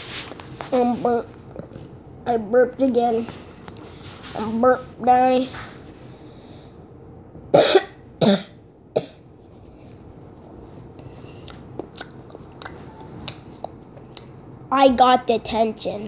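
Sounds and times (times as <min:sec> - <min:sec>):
boy coughing: 0:07.6 - 0:09.2.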